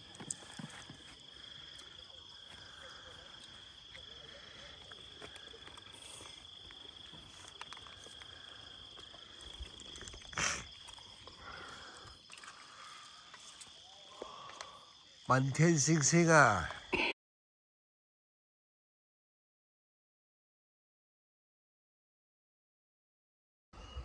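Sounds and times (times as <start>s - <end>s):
crickets trilling: 0.0s - 17.1s, 23.8s - 24.0s.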